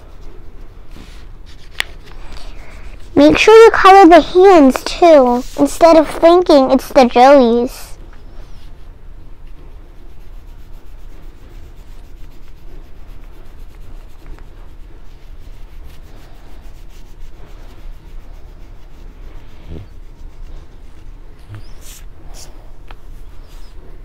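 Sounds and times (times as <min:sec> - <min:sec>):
oil pastel scribbling on paper: 0:00.0 - 0:08.8, 0:09.5 - 0:23.9.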